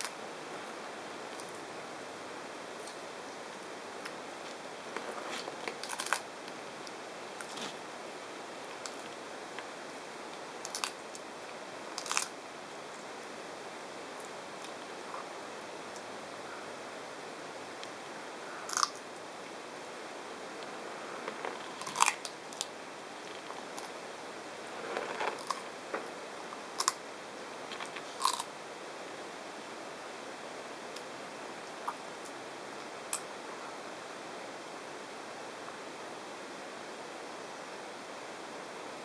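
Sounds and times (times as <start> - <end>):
steady hiss: 0.0 - 39.0
tortoise crunching cactus: 5.0 - 6.3, 10.6 - 11.0, 12.0 - 12.4, 18.6 - 19.0, 20.6 - 24.0, 24.6 - 25.9, 26.7 - 27.0, 27.7 - 28.5.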